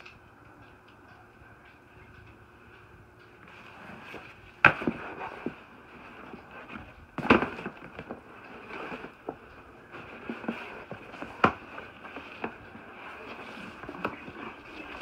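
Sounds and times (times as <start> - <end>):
rustling: 3.4 - 15.0.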